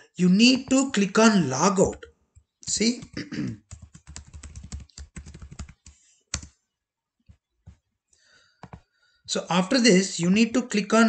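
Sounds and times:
typing on computer keyboard: 2.4 - 6.5.

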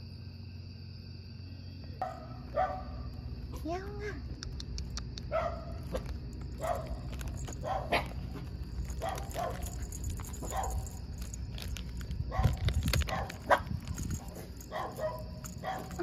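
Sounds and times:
dog barking: 2.0 - 3.1, 5.2 - 8.4, 9.0 - 11.0, 12.3 - 13.7, 14.6 - 16.0.

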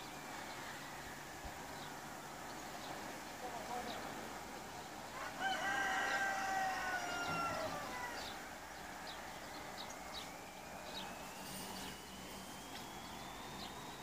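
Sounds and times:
small birds chirping: 0.0 - 14.0
rooster crowing: 5.1 - 14.0.

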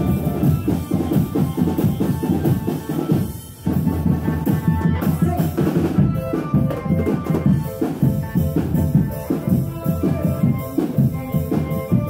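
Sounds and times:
marching drums playing: 0.0 - 12.0.

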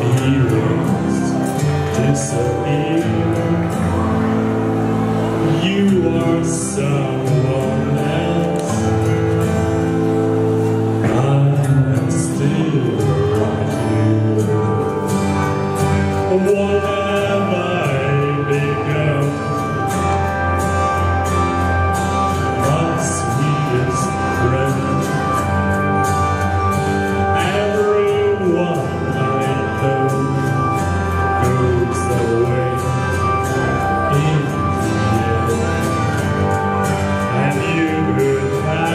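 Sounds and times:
instrumental backing music: 0.0 - 38.9
man singing into a microphone: 0.0 - 38.9.

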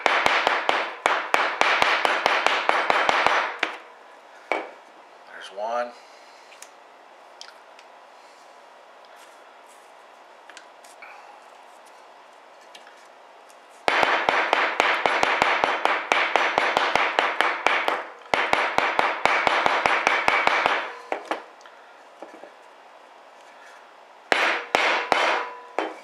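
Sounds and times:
mallet striking steel punch: 24.3 - 26.0.

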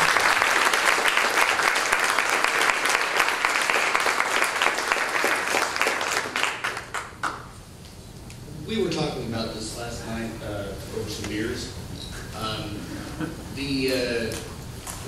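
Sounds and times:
audience applauding: 0.0 - 7.5.

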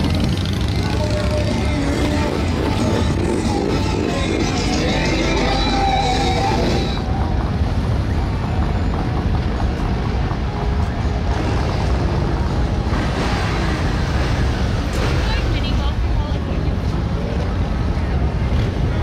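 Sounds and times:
music playing: 0.0 - 8.5
motorcycle engines rumbling: 0.0 - 19.0.

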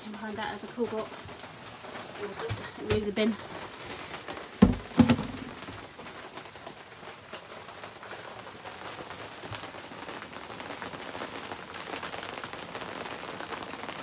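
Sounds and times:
plastic bin being moved: 4.4 - 5.9
sharp knocks: 4.6 - 5.7.

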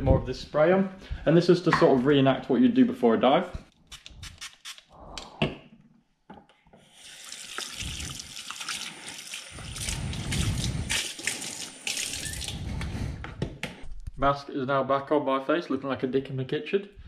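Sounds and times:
mask rinsed under water stream: 6.8 - 13.2
tap water running into sink: 6.9 - 12.6.

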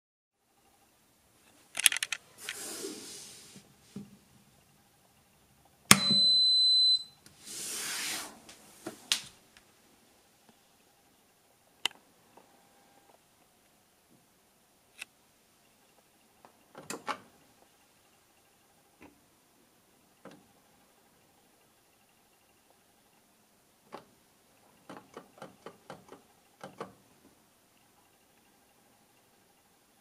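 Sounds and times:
handling rustles and clicks: 1.4 - 2.6
oven beep: 5.9 - 7.2.

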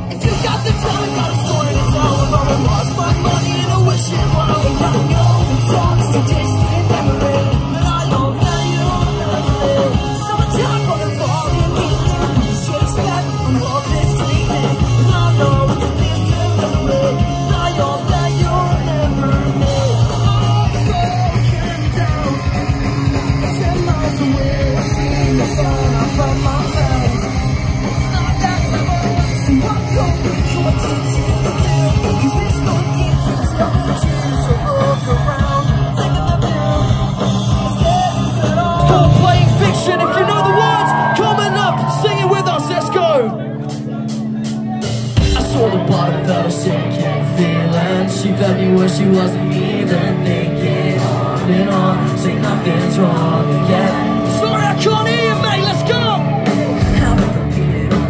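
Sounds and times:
bass guitar: 0.0 - 58.0
distorted electric guitars: 0.0 - 58.0
drums: 0.0 - 58.0
person singing: 0.1 - 41.4.

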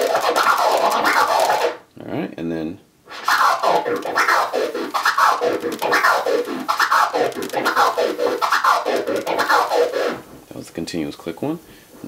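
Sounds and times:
turntable scratching: 0.0 - 1.9, 3.1 - 10.4.

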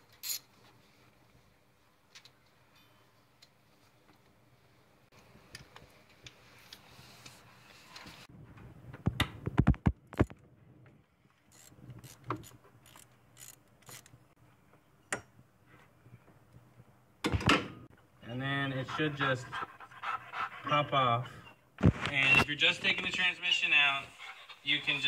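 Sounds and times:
socket ratchet clicking: 11.6 - 14.1.

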